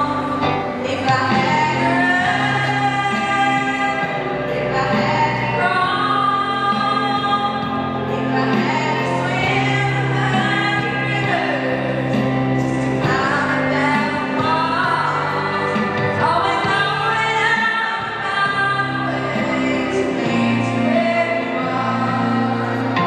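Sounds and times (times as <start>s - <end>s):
girl singing into microphone: 0.0s - 23.0s
recorded backing music: 0.0s - 23.0s.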